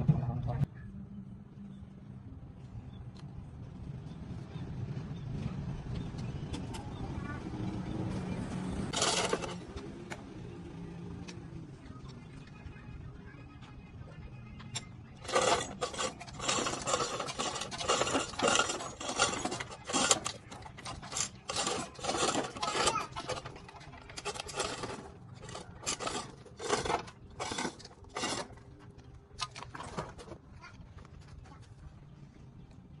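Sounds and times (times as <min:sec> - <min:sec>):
hand scraping strokes: 0:08.9 - 0:09.6, 0:15.2 - 0:28.6.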